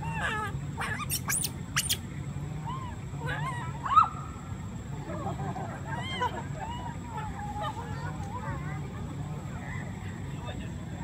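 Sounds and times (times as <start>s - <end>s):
baby monkeys squeaking and cooing: 0.0s - 3.7s.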